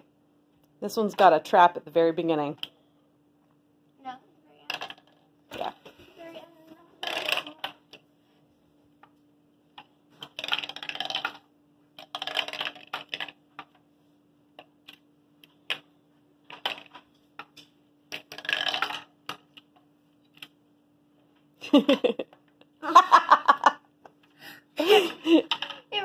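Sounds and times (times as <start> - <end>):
marble rolling and rattling in maze: 4.6 - 5.8, 7.0 - 8.0, 9.8 - 13.8, 16.4 - 20.5, 25.0 - 26.0.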